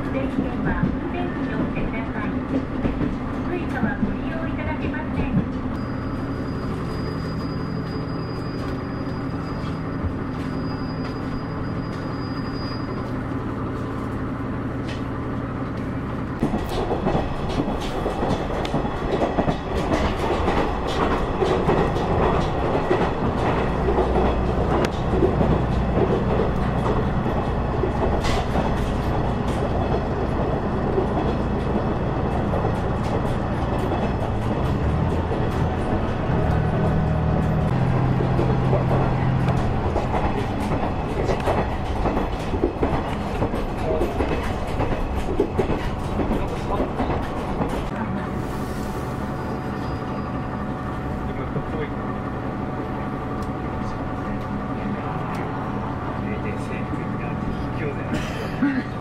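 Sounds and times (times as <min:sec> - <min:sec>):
diesel train engine hum: 0:00.0 - 0:59.0
train rattling: 0:00.0 - 0:59.0
wheels clicking over rail joints: 0:13.1 - 0:47.9.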